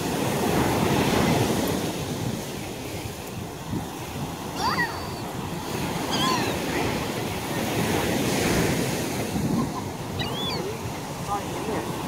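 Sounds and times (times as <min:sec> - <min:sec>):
surf washing on shore: 0:00.0 - 0:12.0
wind buffeting microphone: 0:00.0 - 0:12.0
gull calls: 0:06.0 - 0:06.6, 0:10.2 - 0:10.7.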